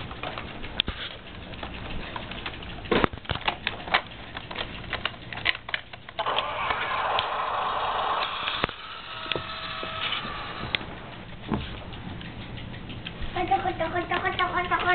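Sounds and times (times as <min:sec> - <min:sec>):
sharp clicks and taps: 0:10.6 - 0:14.9.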